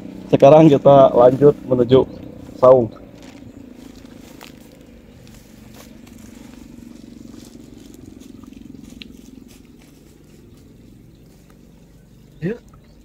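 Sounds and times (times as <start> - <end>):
footsteps through grass and leaves: 0.0 - 13.0
steady low hum: 0.0 - 13.0.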